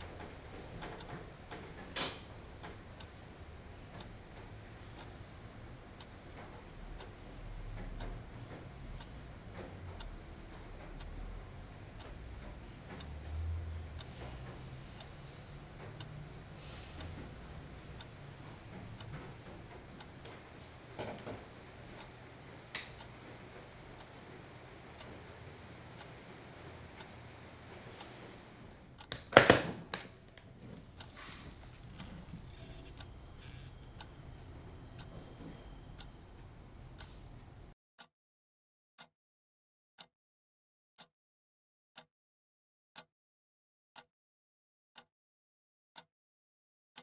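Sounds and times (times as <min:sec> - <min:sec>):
alarm clock ticking: 0:05.9 - 0:20.4, 0:25.0 - 0:25.2, 0:31.0 - 0:36.4
sharp knocks: 0:29.1 - 0:30.1.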